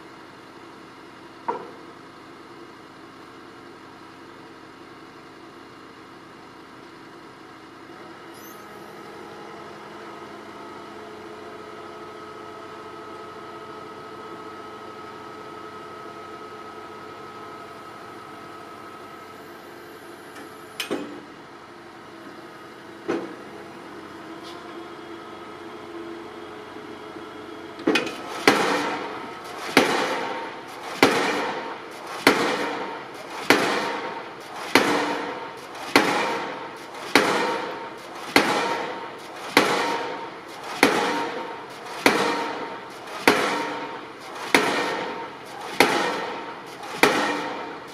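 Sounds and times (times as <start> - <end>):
piling rig engine humming: 0.0 - 47.9
sharp knocks: 27.9 - 47.8
pile hammer blows ringing on steel: 28.0 - 47.9.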